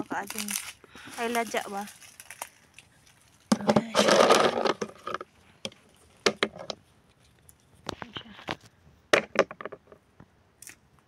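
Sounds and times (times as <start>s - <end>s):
almonds clattering into container: 3.5s - 5.2s.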